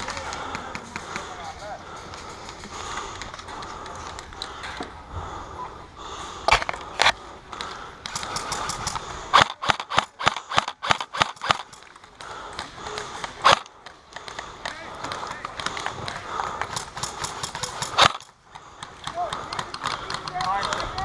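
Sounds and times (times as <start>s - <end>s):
airsoft guns firing: 7.6s - 14.5s, 15.1s - 21.0s.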